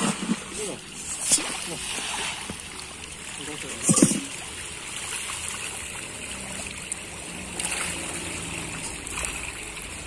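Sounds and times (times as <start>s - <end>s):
water splashing and churning: 0.0s - 10.0s.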